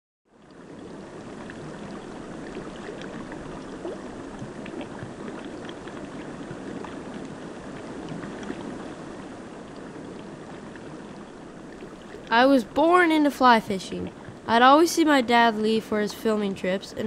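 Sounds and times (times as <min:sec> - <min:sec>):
small splashes and gurgles: 0:00.5 - 0:12.3
river water rushing: 0:00.6 - 0:17.0.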